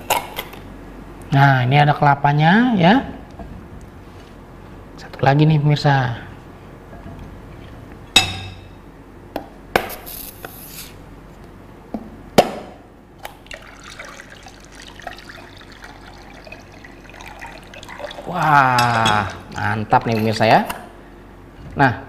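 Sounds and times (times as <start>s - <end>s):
liquid trickling into ceramic bowl: 13.4s - 20.3s.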